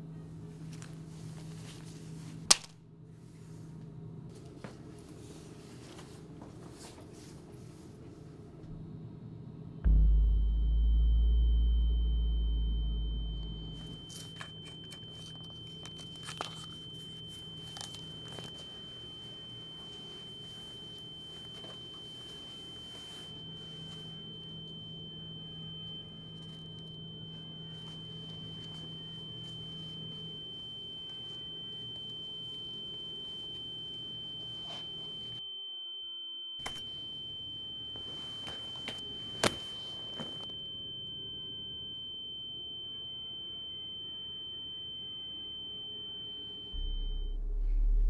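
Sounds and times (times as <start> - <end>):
low hum: 8.6 - 35.4, 40.0 - 48.0
deep boom: 9.9 - 14.0, 46.8 - 48.0
high-pitched ringing tone: 9.9 - 48.0.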